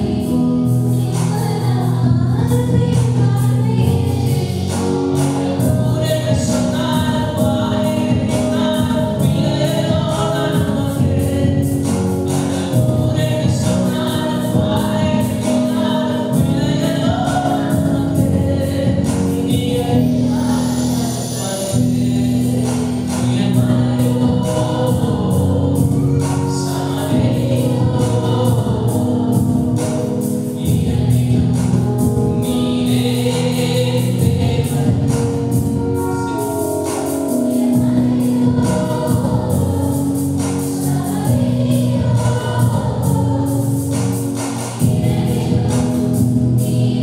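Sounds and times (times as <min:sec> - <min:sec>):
man and woman singing: 0:00.0 - 0:36.4, 0:37.0 - 0:47.0
band with percussion beat: 0:21.4 - 0:47.0.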